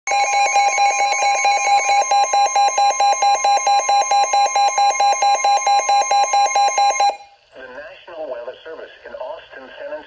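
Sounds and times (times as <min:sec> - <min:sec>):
steady high alarm tone: 0:00.1 - 0:07.3.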